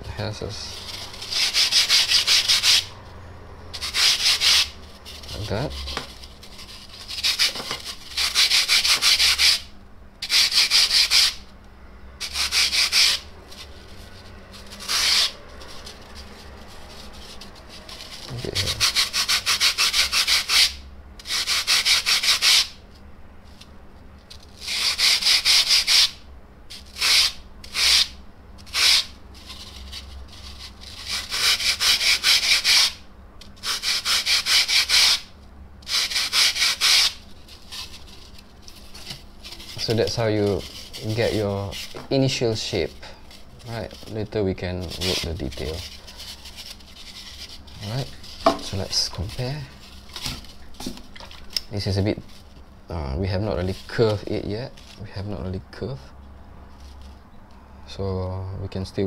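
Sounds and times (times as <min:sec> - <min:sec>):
hand-sanding foam block: 0:00.4 - 0:02.9, 0:03.8 - 0:11.4, 0:12.2 - 0:22.8, 0:24.6 - 0:33.0, 0:33.6 - 0:50.0, 0:53.3 - 0:54.7.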